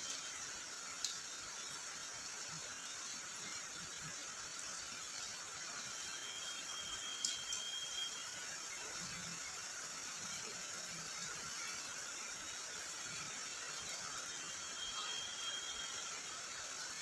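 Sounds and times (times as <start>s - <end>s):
heavy rain on grass: 0.0s - 17.0s
faint thin high tone: 5.8s - 9.2s, 14.1s - 16.4s.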